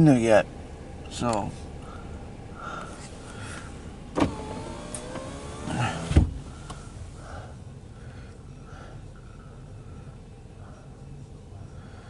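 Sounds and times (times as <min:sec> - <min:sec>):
power window motor whine: 0:04.1 - 0:06.4
window heavy thump: 0:05.9 - 0:06.4.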